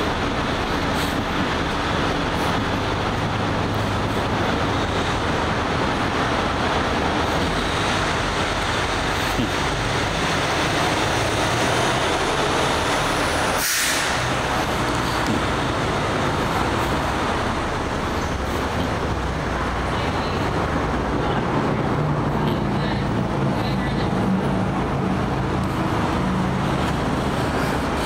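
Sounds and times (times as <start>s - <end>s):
road traffic noise: 0.0s - 28.0s
short sharp hiss: 13.6s - 14.2s.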